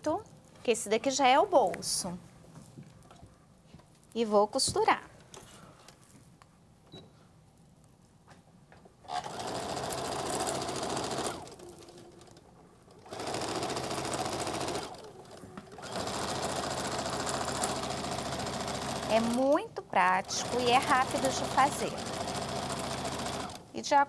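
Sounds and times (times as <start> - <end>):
sewing machine stitching: 9.1 - 12.4, 13.0 - 19.5, 20.2 - 23.6.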